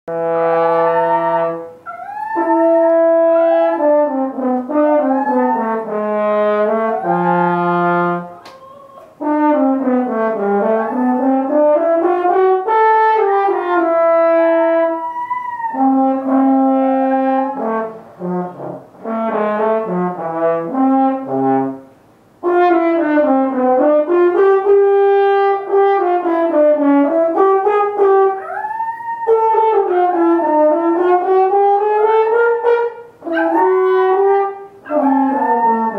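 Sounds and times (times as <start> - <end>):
french horn playing: 0.1 - 1.8, 2.5 - 8.4, 9.2 - 15.0, 15.8 - 28.6, 29.3 - 35.9
dog howling: 0.7 - 9.2, 10.6 - 12.1, 14.6 - 17.8, 28.4 - 30.9, 33.3 - 34.2, 34.9 - 35.9.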